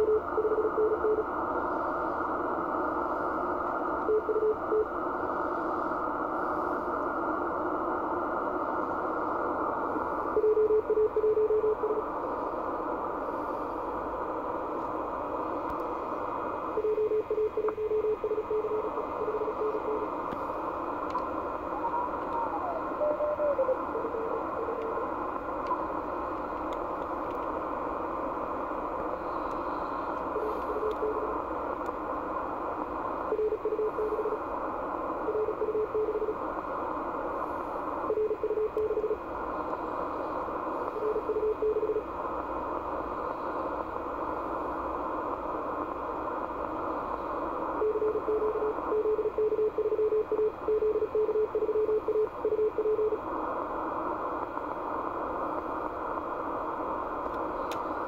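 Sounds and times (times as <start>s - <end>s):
radio receiver hiss: 0.0s - 58.0s
morse code tone: 16.8s - 20.1s, 21.7s - 25.1s, 47.8s - 53.2s.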